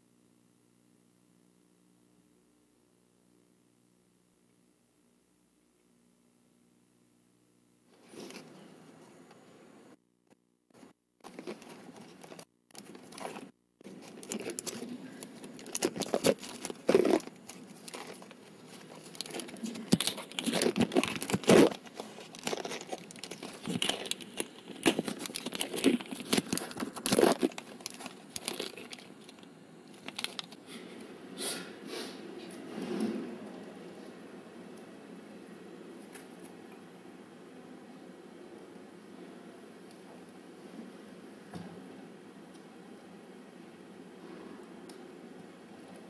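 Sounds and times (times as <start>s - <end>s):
handling noise: 10.4s - 30.6s
tape crinkling and tearing: 11.2s - 30.6s.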